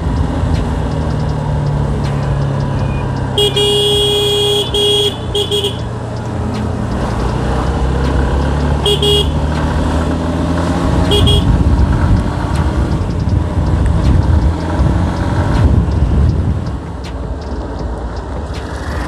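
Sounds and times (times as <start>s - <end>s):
motorcycle engine running: 0.0s - 19.0s
short horn beep: 2.8s - 5.9s, 8.8s - 9.4s, 11.1s - 11.6s.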